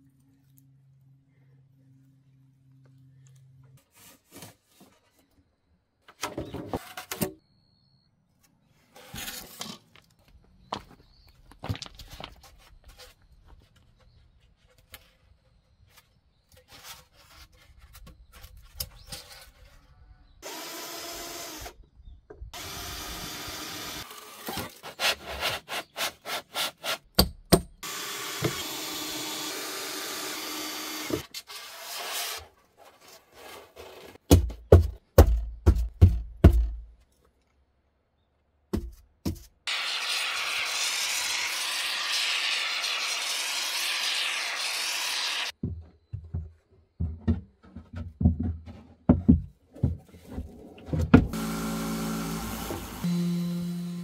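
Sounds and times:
cordless drill running: 0:20.4 - 0:21.8, 0:22.6 - 0:24.4, 0:27.8 - 0:31.9, 0:51.3 - 0:54.0
rhythmic sawing strokes: 0:39.7 - 0:45.5.

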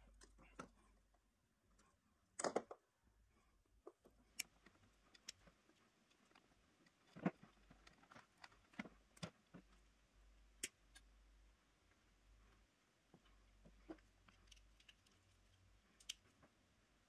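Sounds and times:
clicks of tools and wires handled: 0:00.0 - 0:00.9, 0:03.8 - 0:09.9, 0:10.5 - 0:11.2, 0:13.1 - 0:16.5.

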